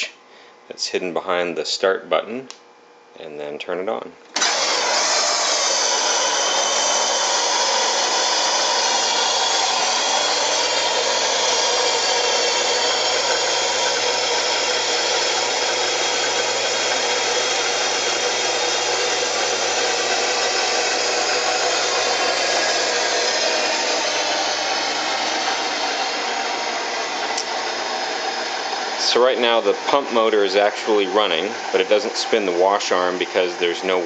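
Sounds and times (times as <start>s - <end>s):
dishwasher pump motor whirring: 4.3s - 34.0s.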